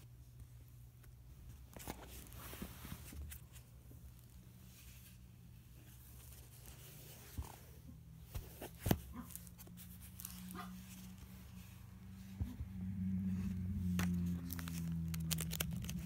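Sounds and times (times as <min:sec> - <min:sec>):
low steady hum: 0:00.0 - 0:16.0
paper rustling: 0:01.5 - 0:05.2, 0:08.3 - 0:11.8, 0:13.7 - 0:16.0.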